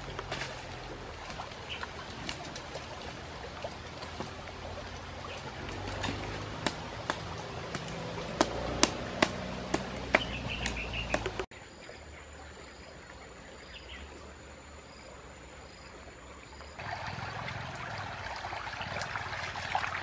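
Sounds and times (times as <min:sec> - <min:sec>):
running water rumble: 0:00.0 - 0:20.0
campfire crackling and popping: 0:05.6 - 0:11.5.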